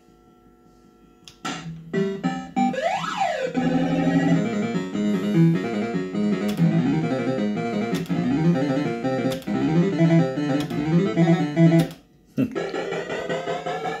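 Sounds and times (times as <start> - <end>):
fruit machine electronic tune: 1.9 - 14.0
sharp clicks: 6.4 - 6.7, 7.8 - 8.3, 9.2 - 9.6, 11.7 - 12.0.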